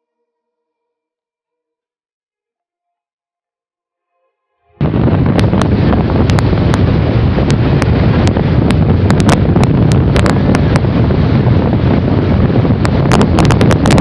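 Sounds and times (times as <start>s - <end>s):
wind buffeting microphone: 4.8s - 14.0s.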